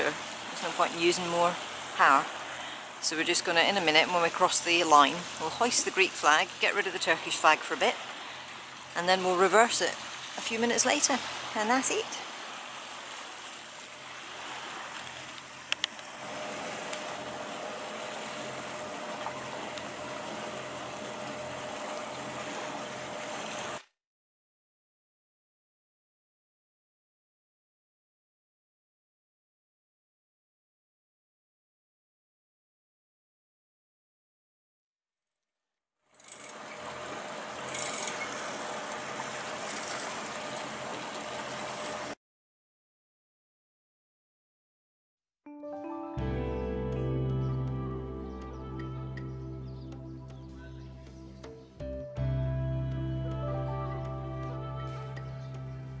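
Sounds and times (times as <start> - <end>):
water rushing along hull: 0.0 - 23.9, 36.4 - 42.2
wind: 0.0 - 23.9, 36.1 - 42.2, 45.9 - 56.0
engine hum: 14.5 - 23.8, 36.3 - 42.2, 46.2 - 56.0.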